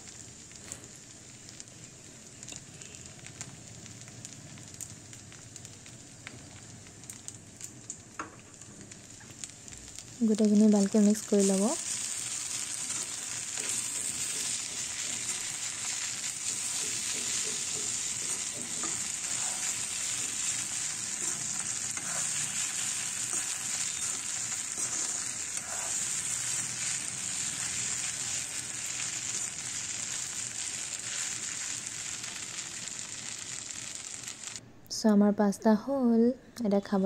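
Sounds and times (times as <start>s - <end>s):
pasta sizzling in a pan: 0.0s - 34.6s
steel spoon scraping pan: 12.8s - 26.4s.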